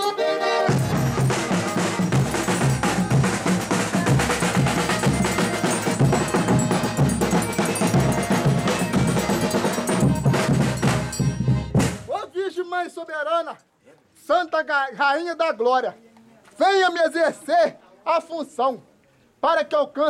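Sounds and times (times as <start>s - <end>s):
drum beating dance rhythm: 0.7s - 12.1s
tambourine jingling: 0.8s - 11.8s.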